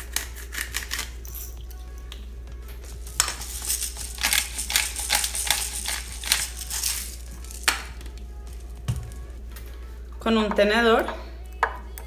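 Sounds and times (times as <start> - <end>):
pepper grinder crunching: 2.9 - 8.7.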